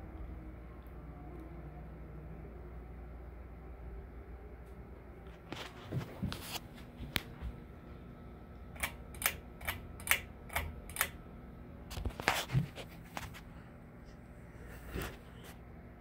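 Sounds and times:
ceiling fan humming: 0:00.0 - 0:16.0
ceiling fan clicking: 0:08.5 - 0:11.2.

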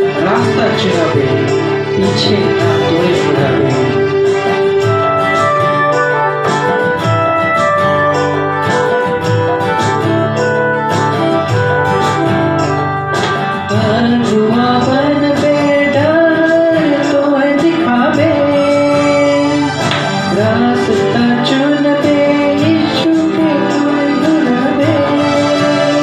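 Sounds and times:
man singing into a microphone: 0:00.0 - 0:04.9, 0:13.6 - 0:26.0
electronic keyboard: 0:00.0 - 0:26.0
strummed acoustic guitar: 0:00.0 - 0:26.0.

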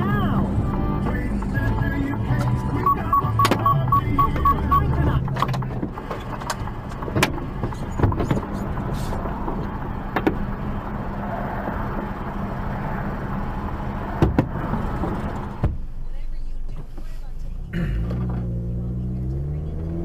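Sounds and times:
truck engine humming: 0:00.0 - 0:15.6.

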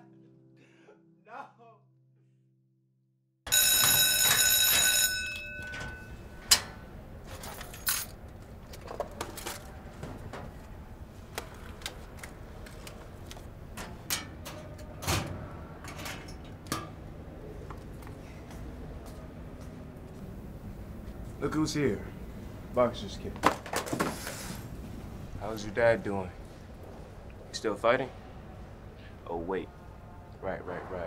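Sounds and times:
electric bell ringing: 0:03.5 - 0:06.6
locker door clank: 0:03.5 - 0:08.2.

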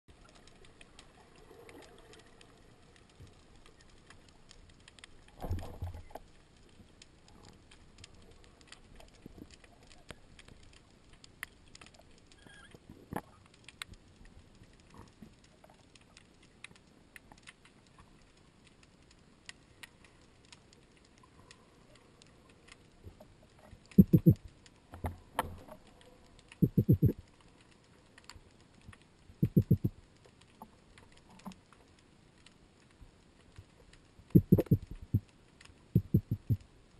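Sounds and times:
underwater clicks and crackling: 0:00.1 - 0:36.9
rapid underwater knocks: 0:23.9 - 0:24.4, 0:26.6 - 0:27.2, 0:29.4 - 0:29.9, 0:34.4 - 0:35.2, 0:36.0 - 0:36.6.

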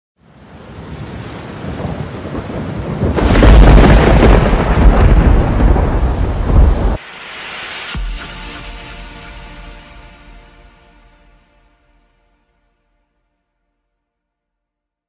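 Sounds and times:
thunder-like rumbling: 0:00.8 - 0:07.0
low boom: 0:03.2 - 0:07.0.

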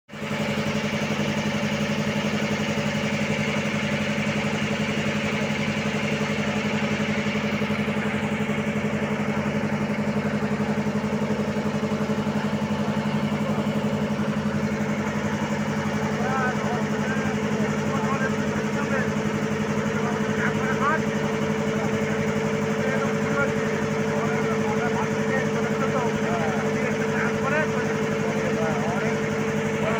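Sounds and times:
boat engine throbbing: 0:00.1 - 0:29.9.

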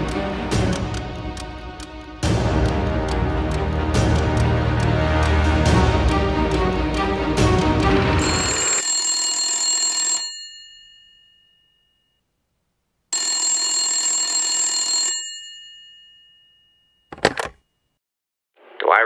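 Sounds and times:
music track: 0:00.0 - 0:08.6
telephone bell ringing: 0:08.2 - 0:12.2, 0:13.1 - 0:17.5.

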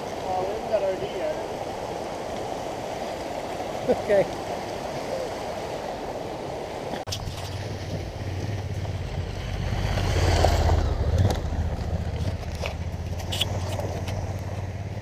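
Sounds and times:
motorcycle engines rumbling: 0:07.1 - 0:15.0
motorcycle passing by: 0:07.5 - 0:15.0
stones and gravel clicking: 0:11.0 - 0:14.7.

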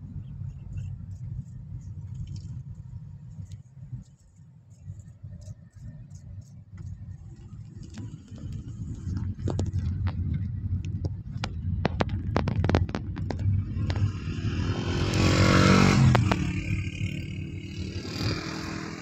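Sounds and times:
car road rumble inside cabin: 0:00.0 - 0:19.0
light clicks and rattles: 0:00.2 - 0:14.2.

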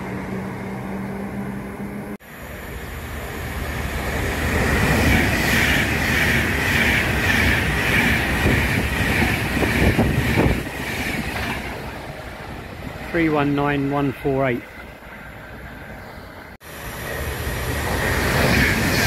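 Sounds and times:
train passing at speed: 0:00.0 - 0:19.0
sharp clacks of train wheels: 0:04.7 - 0:11.8.

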